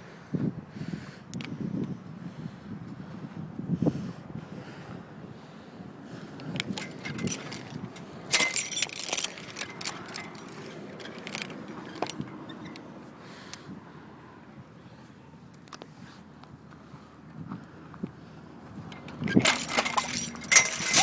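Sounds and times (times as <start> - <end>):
metallic jingling: 6.7 - 12.9, 18.9 - 21.0.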